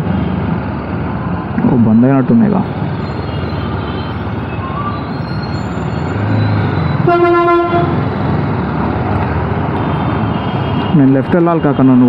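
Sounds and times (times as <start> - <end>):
street traffic noise: 0.0 - 12.0
motorcycle engine: 6.1 - 10.3
vehicle horn: 7.0 - 8.0.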